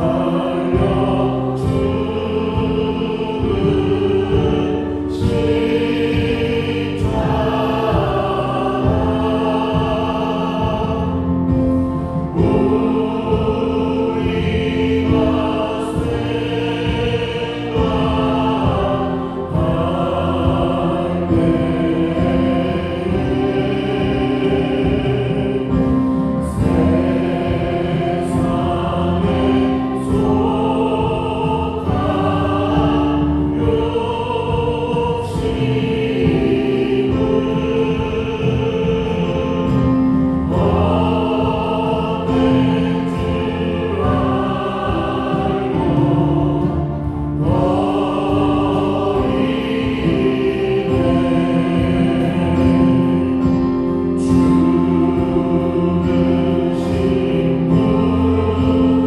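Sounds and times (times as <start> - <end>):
drum kit: 0.0 - 59.0
group of voices singing: 0.0 - 59.0.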